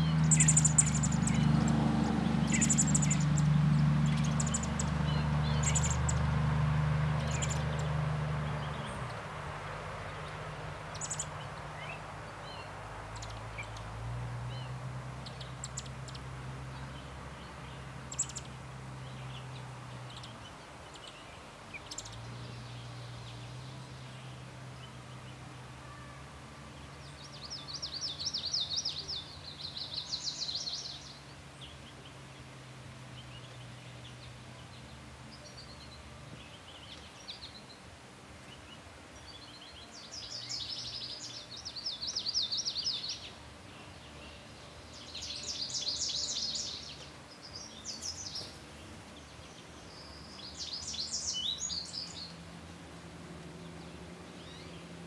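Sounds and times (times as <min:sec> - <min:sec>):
nestlings chirping: 0:00.0 - 0:06.4, 0:10.9 - 0:11.3.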